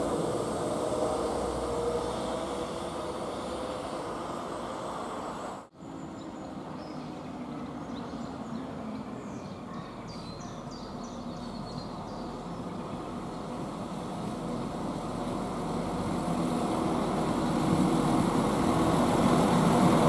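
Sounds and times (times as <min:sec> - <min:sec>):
train engine droning: 0:00.0 - 0:09.3, 0:11.8 - 0:20.0
small birds chirping: 0:05.8 - 0:13.8.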